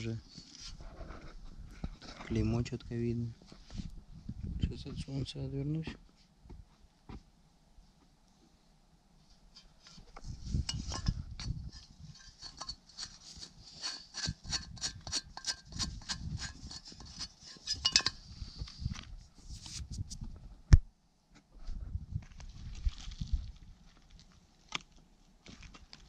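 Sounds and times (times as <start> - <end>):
scratchy rubbing and scraping: 0.3 - 2.5, 9.6 - 20.2.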